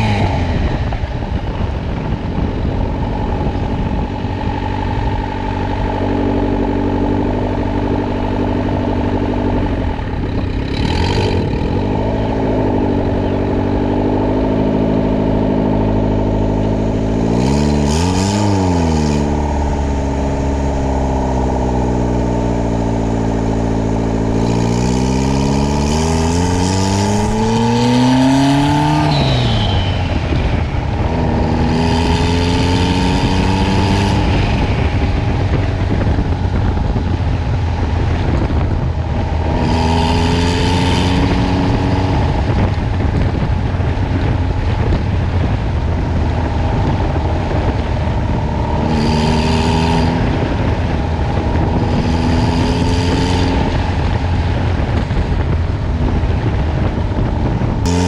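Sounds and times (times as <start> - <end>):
car engine accelerating: 0.0 - 58.0
falling turbo whistle: 29.0 - 30.4.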